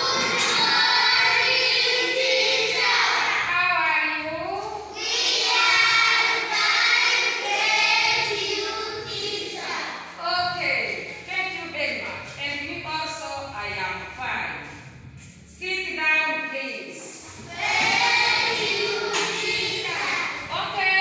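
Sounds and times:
children singing together: 0:00.0 - 0:03.5, 0:04.8 - 0:10.1, 0:17.3 - 0:20.5.

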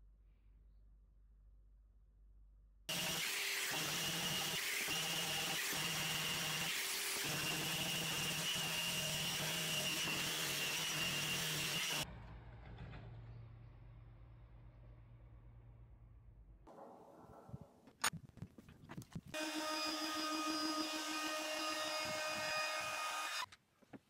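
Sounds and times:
orbit sander whirring: 0:02.9 - 0:12.0, 0:19.3 - 0:23.5.

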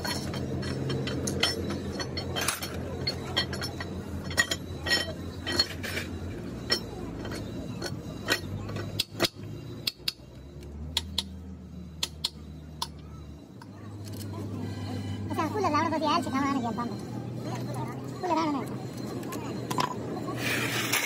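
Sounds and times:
metal tools clinking: 0:00.0 - 0:10.0, 0:15.4 - 0:21.0.

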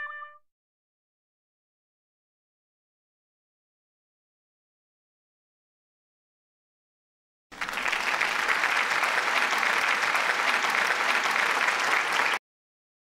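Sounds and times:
crowd clapping: 0:07.5 - 0:12.4.

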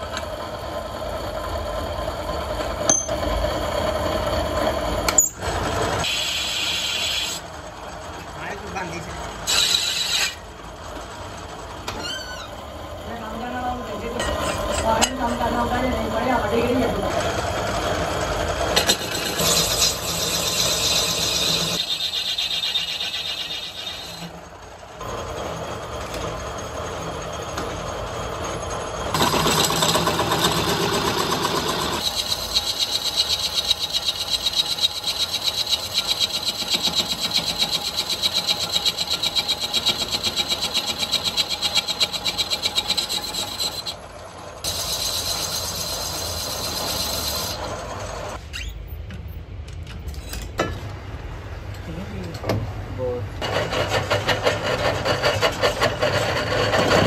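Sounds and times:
metal lathe running: 0:00.0 - 0:48.4, 0:53.4 - 0:57.0
high squeal of cutting tool: 0:05.1 - 0:07.5, 0:09.4 - 0:10.5, 0:11.9 - 0:13.1, 0:18.8 - 0:24.4, 0:28.4 - 0:44.0, 0:44.6 - 0:48.8.

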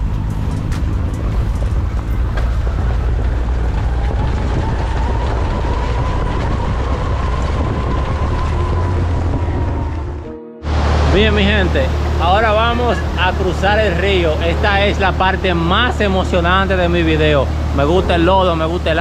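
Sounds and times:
wind noise on microphone: 0:00.0 - 0:11.1
atv engine running: 0:00.0 - 0:19.0.

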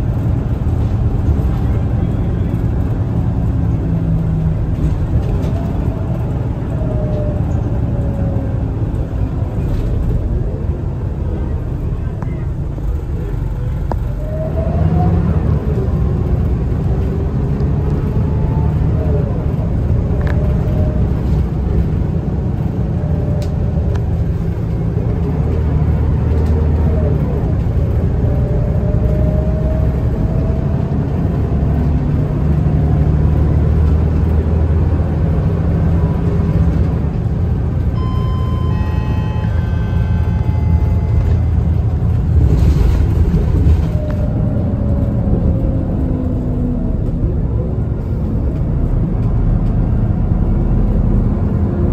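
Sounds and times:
bus engine low drone: 0:00.0 - 0:51.9
whine sliding in pitch: 0:38.0 - 0:42.2.

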